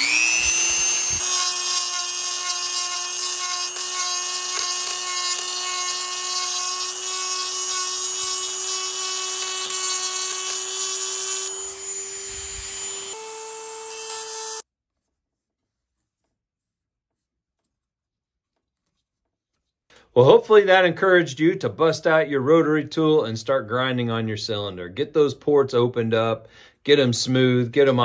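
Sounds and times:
rotary tool grinding metal: 0.0 - 14.6.

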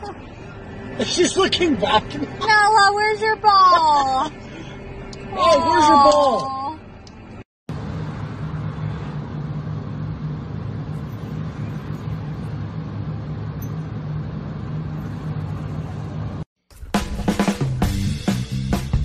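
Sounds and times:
rumble and rushing air from grate: 0.0 - 5.5, 6.8 - 16.4
low hum: 0.0 - 16.4.

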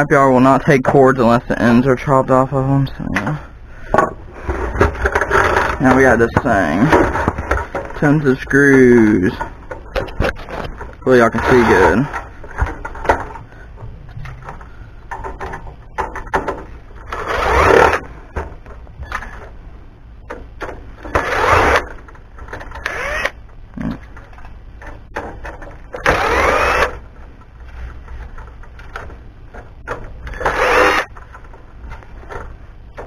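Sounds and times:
power driver motor whining: 22.8 - 23.4, 26.0 - 27.0, 30.3 - 31.1.

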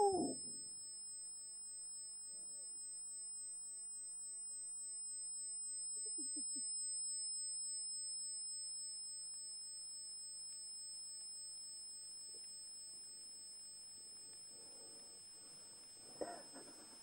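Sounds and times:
steady high-pitched tones: 0.0 - 0.4
woman sobbing: 0.0 - 0.4, 16.2 - 16.7.

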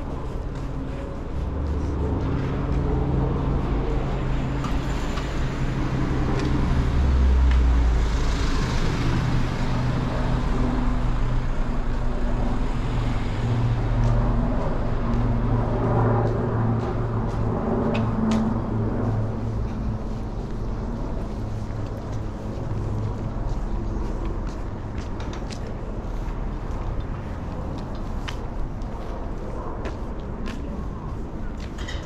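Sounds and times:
vehicle passing by: 0.0 - 24.2
car engines humming: 0.0 - 29.3.

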